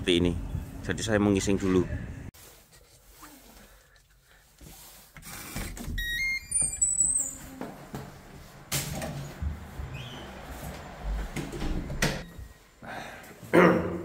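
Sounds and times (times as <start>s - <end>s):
metal door clunking open: 11.3s - 12.3s.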